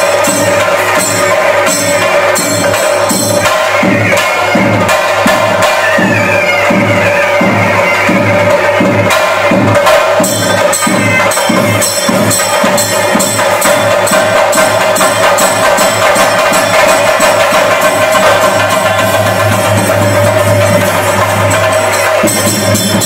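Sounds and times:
drums beating a driving rhythm: 0:00.0 - 0:23.0
hand cymbals clashing: 0:00.0 - 0:23.0.

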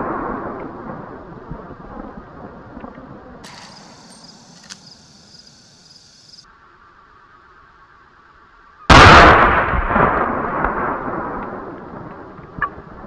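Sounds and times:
rifle shot with rolling echo: 0:08.9 - 0:13.0.

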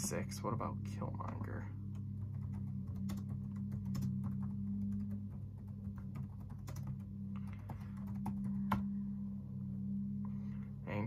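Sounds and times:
low hum: 0:00.0 - 0:11.0
keyboard typing: 0:01.9 - 0:08.9.

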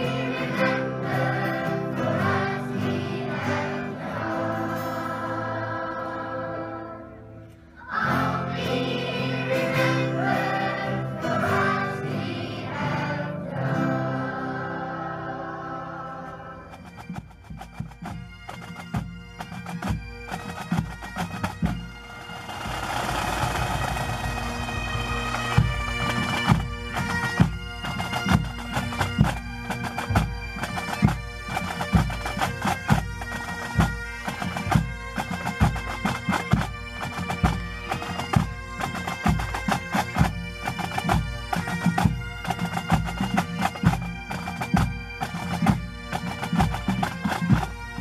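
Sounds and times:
bagpipes playing a tune: 0:00.0 - 0:48.0.

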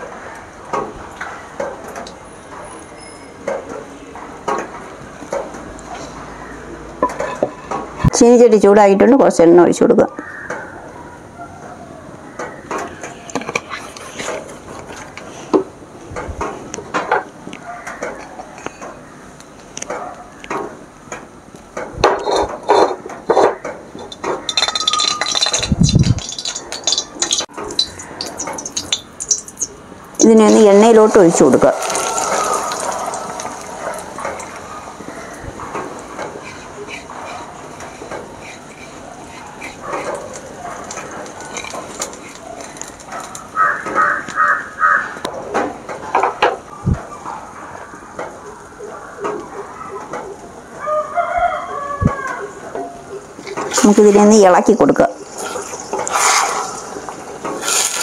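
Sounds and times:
hot oil crackling and spitting: 0:23.2 - 0:30.8, 0:31.4 - 0:43.6, 0:55.1 - 0:58.0
egg pouring: 0:24.0 - 0:29.8, 0:31.6 - 0:35.4, 0:55.2 - 0:58.0
wok clinking on stove: 0:24.0 - 0:29.8.

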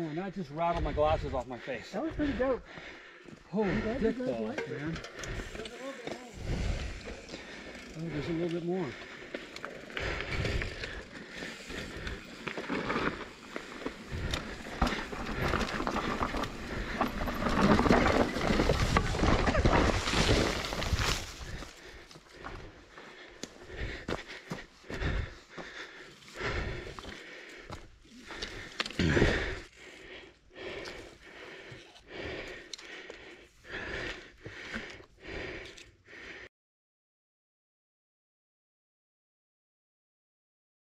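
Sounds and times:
person panting hard: 0:00.0 - 0:36.5
tyres rumbling over roots and rocks: 0:03.7 - 0:33.0
bike crashing: 0:11.8 - 0:21.4.

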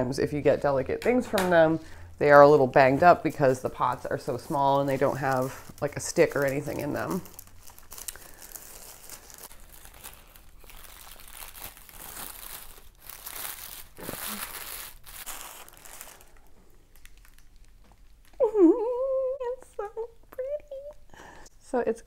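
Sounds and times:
plastic wrapping crinkling: 0:02.3 - 0:18.6.

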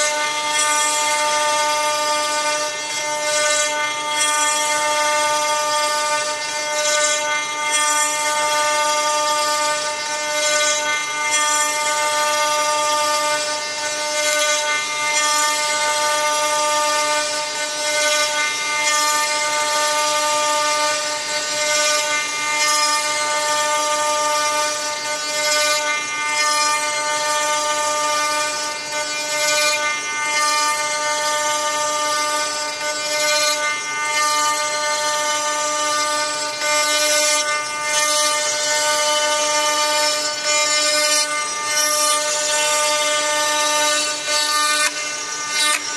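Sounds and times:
router spindle milling wood: 0:00.0 - 0:45.9.

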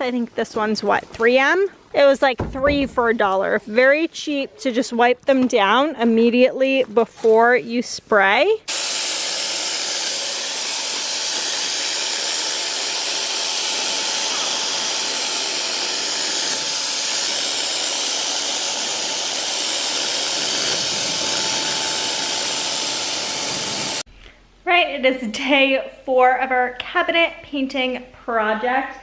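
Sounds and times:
paint sprayer rushing hiss: 0:08.7 - 0:24.1.

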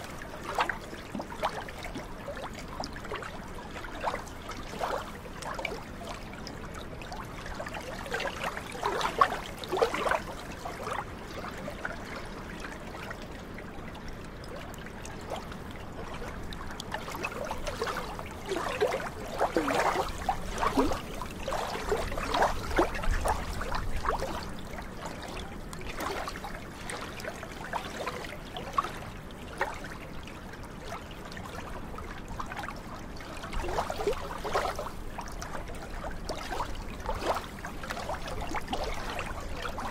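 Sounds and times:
small waves lapping: 0:00.0 - 0:39.9
splashy gurgling plops: 0:16.0 - 0:29.0.

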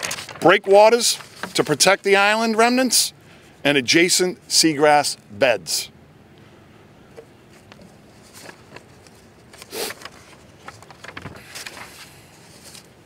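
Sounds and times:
faint outdoor background noise: 0:00.0 - 0:13.0
rustles and clicks at microphones: 0:07.1 - 0:12.0.

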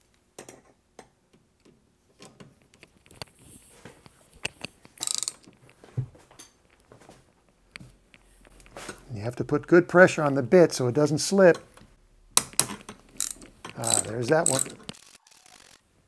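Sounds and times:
ratchet clicking: 0:05.0 - 0:05.4, 0:12.5 - 0:15.8.

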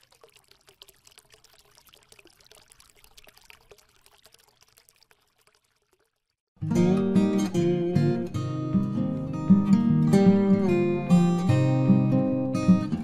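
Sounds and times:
liquid pouring with crackling: 0:00.0 - 0:06.6.

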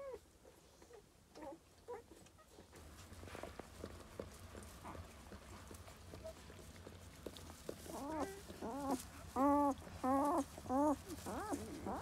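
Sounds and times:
faint rustling in straw: 0:00.1 - 0:12.0
newborn puppies crying: 0:07.9 - 0:12.0.

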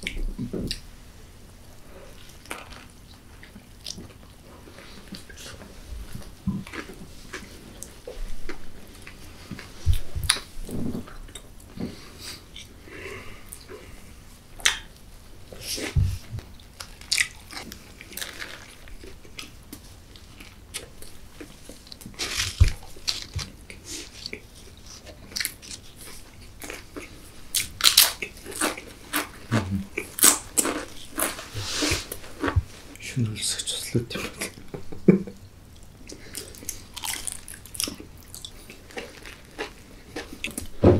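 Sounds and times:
crunchy biting and chewing: 0:16.7 - 0:32.6, 0:35.8 - 0:40.7.

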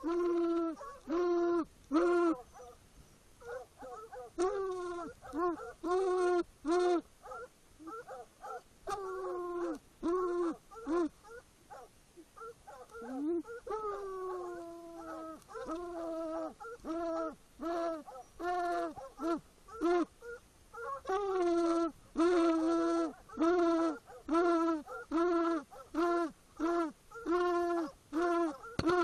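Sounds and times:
hounds baying: 0:00.0 - 0:02.8, 0:03.4 - 0:06.4, 0:07.0 - 0:21.4, 0:23.0 - 0:26.2, 0:27.1 - 0:29.0
dogs barking: 0:00.8 - 0:01.1, 0:02.3 - 0:02.8, 0:03.4 - 0:05.9, 0:07.2 - 0:09.0, 0:10.7 - 0:17.3, 0:18.0 - 0:21.2, 0:23.1 - 0:25.1, 0:25.7 - 0:26.0.

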